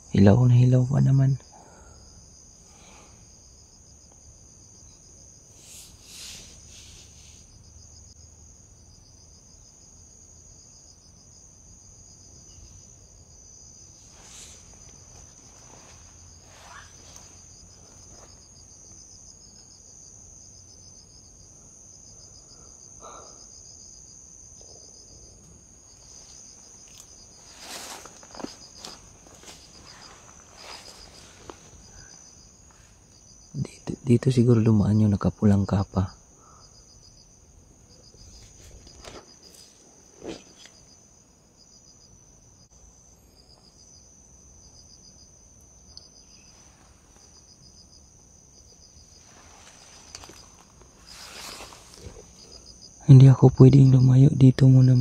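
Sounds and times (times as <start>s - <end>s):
insects trilling: 0.0s - 55.0s
rustles and knocks: 26.0s - 31.8s.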